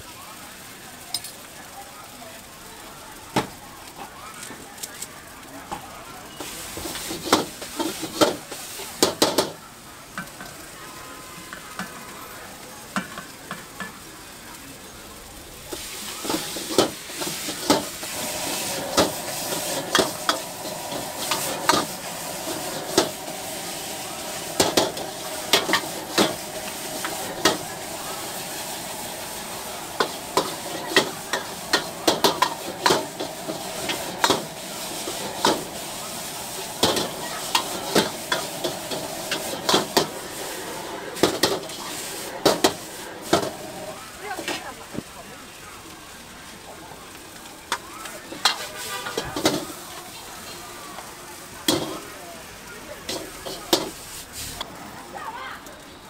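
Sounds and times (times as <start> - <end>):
oil sizzling: 0.0 - 56.0
ladle and spatula striking wok: 6.9 - 9.6, 15.8 - 40.4, 41.2 - 43.6.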